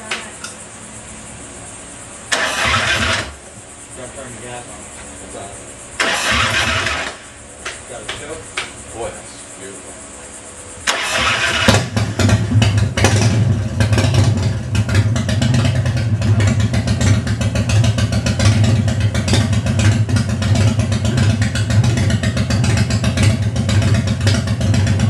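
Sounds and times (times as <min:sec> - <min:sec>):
motorcycle engine starting and idling: 0:02.3 - 0:04.0, 0:05.9 - 0:08.2, 0:10.8 - 0:25.0.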